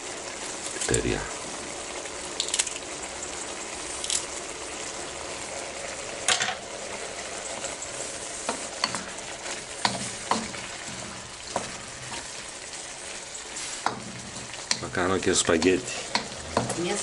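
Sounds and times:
food sizzling in a wok: 0:00.0 - 0:17.0
spatula scraping and knocking pan: 0:08.3 - 0:17.0.

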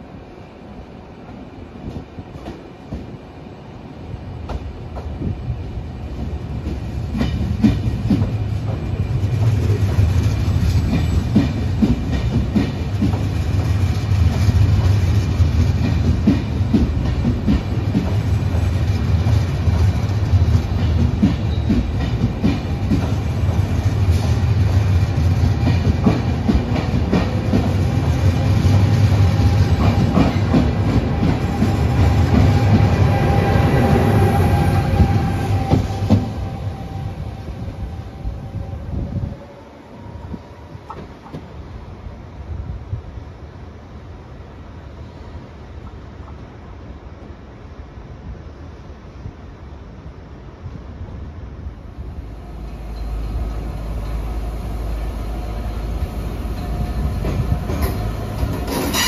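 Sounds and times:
train rumble: 0:00.0 - 0:59.0
train wheels clacking: 0:06.1 - 0:37.0, 0:52.8 - 0:59.0.

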